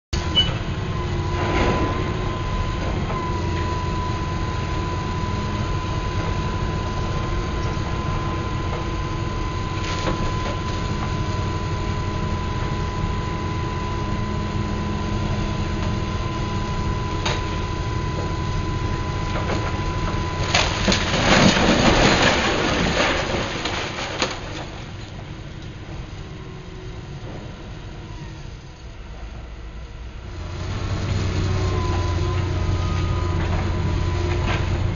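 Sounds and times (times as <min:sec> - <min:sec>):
excavator engine running: 0:00.1 - 0:34.9
brick wall crashing down: 0:20.3 - 0:25.0.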